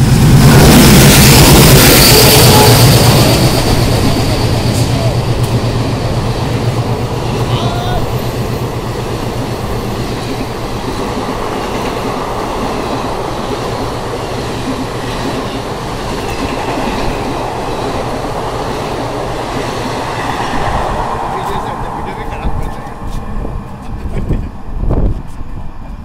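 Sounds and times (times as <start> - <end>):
train wheels rushing on rails: 0.0 - 26.0.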